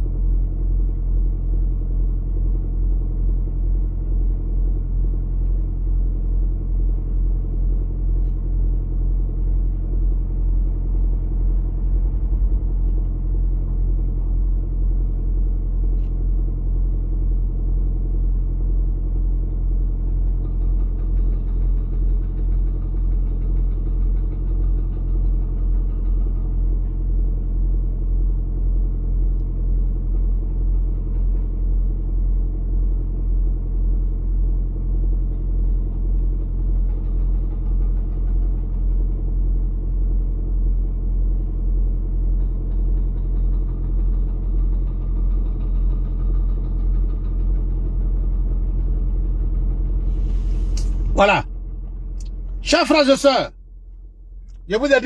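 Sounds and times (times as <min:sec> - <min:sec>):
car engine idling: 0:00.0 - 0:55.0.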